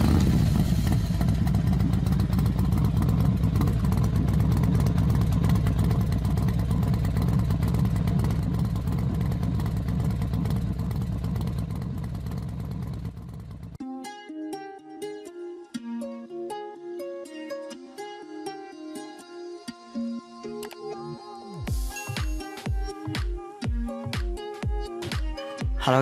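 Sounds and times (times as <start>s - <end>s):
motorcycle engine running: 0.0s - 13.8s, 21.7s - 26.0s.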